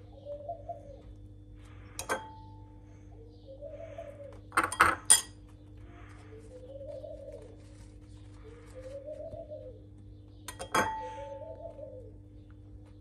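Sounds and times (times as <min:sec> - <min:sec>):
bird cooing: 0:00.0 - 0:01.2, 0:02.9 - 0:04.7, 0:05.8 - 0:12.5
dishes and utensils clinking: 0:02.0 - 0:02.3, 0:04.6 - 0:05.4, 0:10.5 - 0:11.2.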